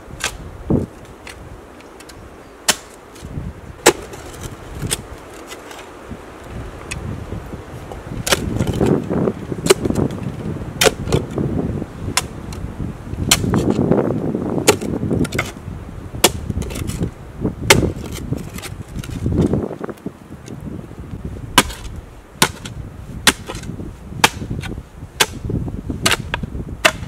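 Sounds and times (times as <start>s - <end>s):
soil crumbling and rustling: 0.0s - 27.0s
metal spade scraping into earth: 1.0s - 6.0s, 13.2s - 13.8s.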